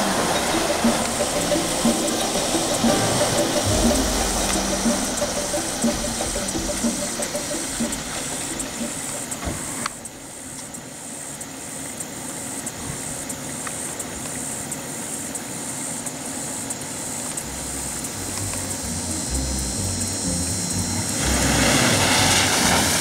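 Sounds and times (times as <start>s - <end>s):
car engines idling: 0.0s - 10.4s, 17.0s - 23.0s
steady hiss: 0.0s - 23.0s.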